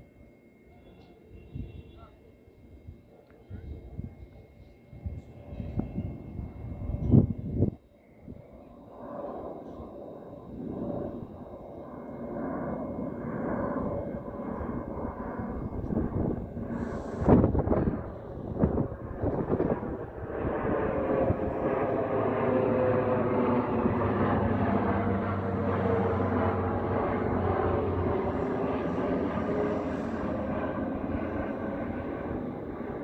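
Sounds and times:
turboprop plane droning: 0.0 - 33.0.

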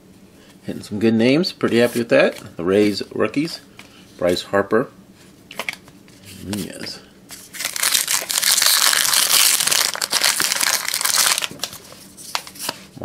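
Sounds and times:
foil wrapper crinkling and tearing: 7.4 - 12.6.

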